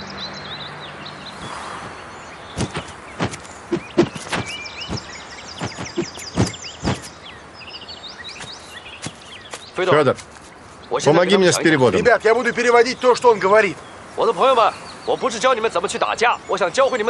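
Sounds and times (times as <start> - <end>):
outdoor ambience: 0.0 - 17.0
small birds chirping: 0.0 - 17.0
sharp irregular thuds: 1.4 - 7.2, 8.4 - 10.5.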